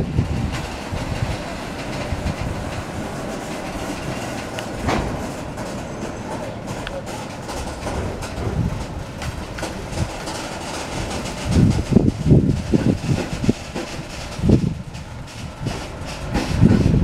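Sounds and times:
train wheels clattering on rails: 0:00.0 - 0:17.0
heavy knock: 0:04.7 - 0:05.8, 0:06.7 - 0:17.0.

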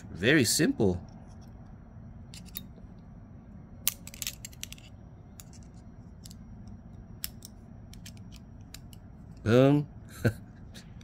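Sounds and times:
low steady hum: 0:00.0 - 0:11.0
metal knife parts clicking: 0:03.8 - 0:06.4.

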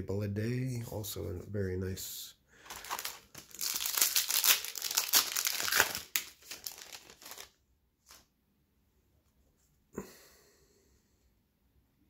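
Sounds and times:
wrapper crinkling and tearing: 0:02.6 - 0:08.2.

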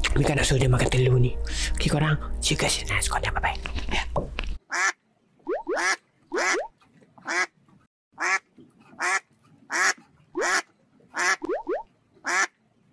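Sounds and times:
duck quacking: 0:04.7 - 0:05.0, 0:05.7 - 0:06.6, 0:07.2 - 0:07.6, 0:08.2 - 0:11.5, 0:12.2 - 0:12.6.

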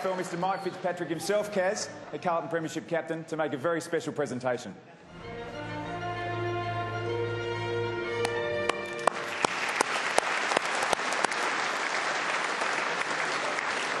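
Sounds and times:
audience applauding: 0:00.0 - 0:01.5, 0:08.2 - 0:14.0
music with held notes: 0:05.1 - 0:09.1.

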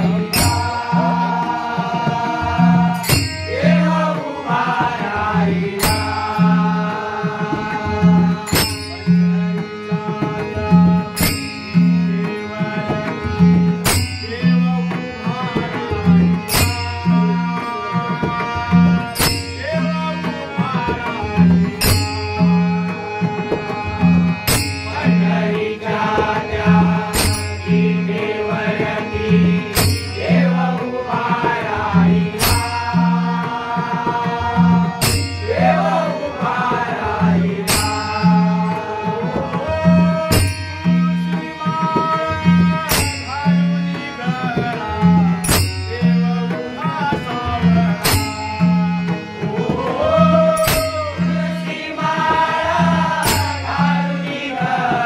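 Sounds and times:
hand drum beating: 0:00.0 - 0:55.0
held melodic tones: 0:00.0 - 0:55.0
metallic clash: 0:27.2 - 0:27.6
person singing: 0:49.5 - 0:55.0.

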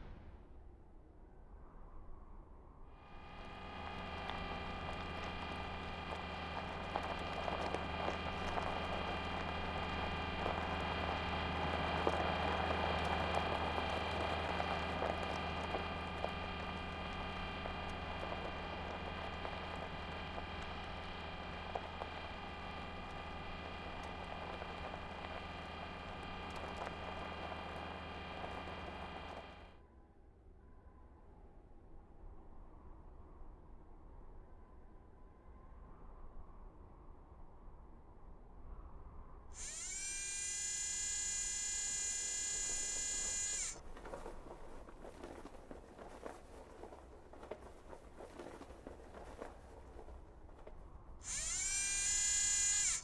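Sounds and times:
drive motors humming and whining: 0:03.0 - 0:29.8, 0:39.6 - 0:53.0
wheels crunching over gravel: 0:03.1 - 0:29.8, 0:39.6 - 0:53.0
high whining tones: 0:39.6 - 0:43.8, 0:51.2 - 0:53.0.

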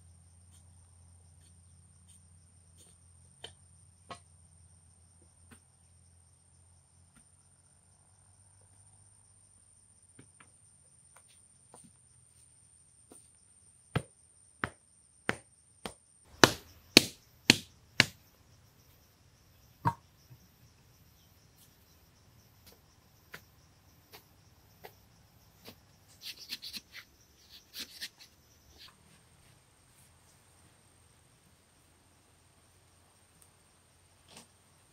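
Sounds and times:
tool chopping into earth: 0:14.0 - 0:18.2
insect buzz: 0:16.3 - 0:34.9.

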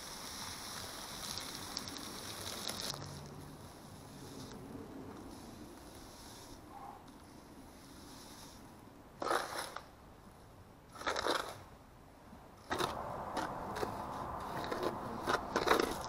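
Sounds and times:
sand pouring into plastic tub: 0:00.0 - 0:04.6
trowel scraping in tub: 0:09.2 - 0:09.8, 0:10.9 - 0:11.6, 0:12.6 - 0:16.0.

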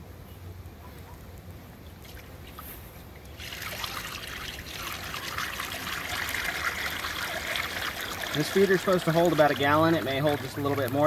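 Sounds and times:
syrup trickling into feeder: 0:03.3 - 0:11.0.

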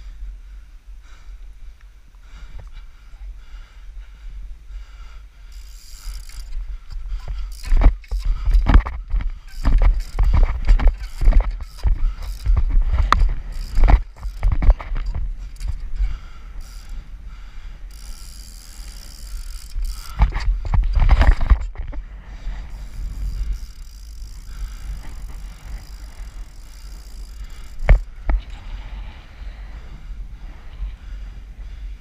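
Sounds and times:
bicycle rolling over paving: 0:05.5 - 0:17.2, 0:17.8 - 0:30.9
bike knocks and rattles: 0:05.9 - 0:16.9, 0:17.9 - 0:28.7
wind rumble on microphone: 0:06.4 - 0:17.8, 0:19.7 - 0:26.7.

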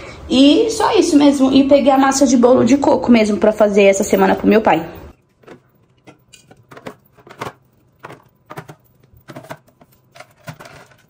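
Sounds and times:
cans clicking and knocking: 0:05.2 - 0:11.0.

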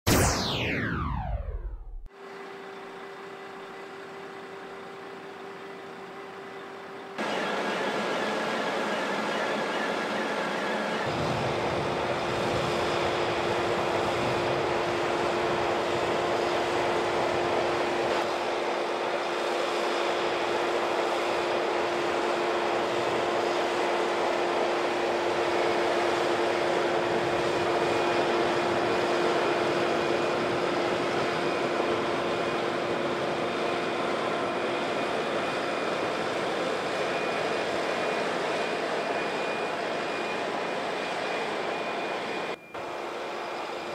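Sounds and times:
steady hum: 0:00.1 - 0:02.1.

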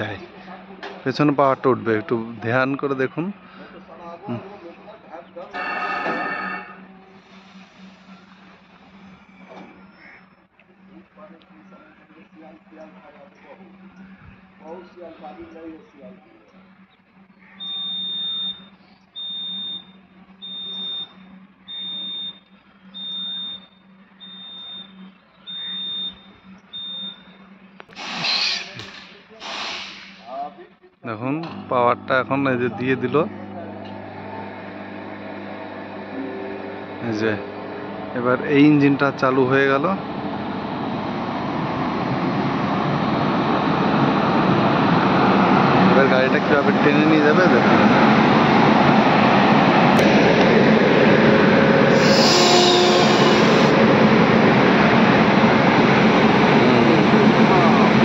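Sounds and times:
locomotive low hum: 0:00.0 - 0:28.0, 0:31.4 - 0:58.0
high-pitched warning beeps: 0:05.5 - 0:06.9, 0:17.6 - 0:27.5.

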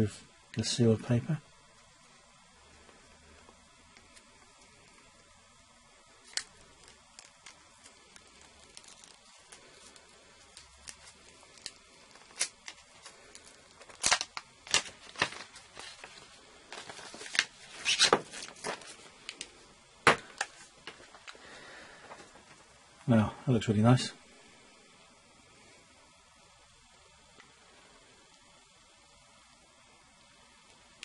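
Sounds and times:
paper seal being torn: 0:13.8 - 0:15.5.

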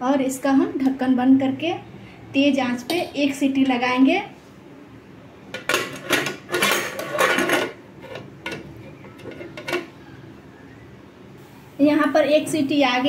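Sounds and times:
metal lid scraping and clanking: 0:05.6 - 0:10.0.

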